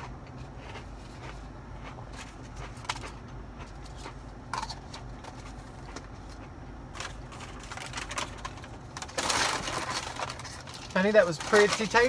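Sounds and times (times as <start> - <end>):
low hum inside car: 0.0 - 12.0
food wrapper clicks and rustles: 2.1 - 12.0.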